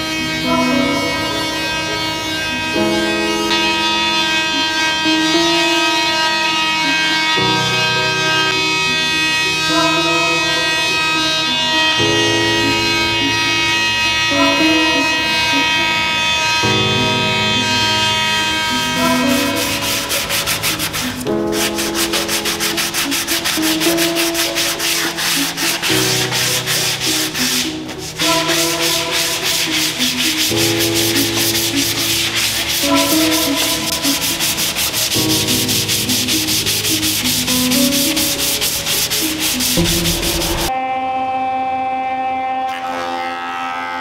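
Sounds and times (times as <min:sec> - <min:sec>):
background music with sustained chords: 0:00.0 - 0:44.0
sandpaper rubbing on wood: 0:18.4 - 0:40.7.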